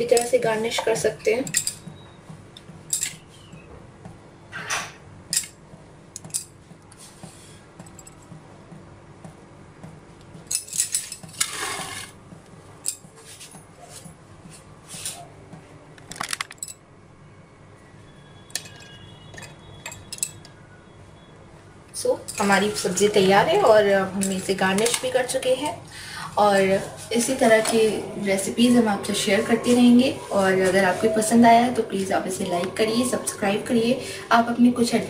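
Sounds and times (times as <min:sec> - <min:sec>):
bangles clinking: 0:01.4 - 0:01.9, 0:02.9 - 0:03.2, 0:05.3 - 0:05.6, 0:18.6 - 0:20.5
scraping on bowl: 0:11.2 - 0:12.2.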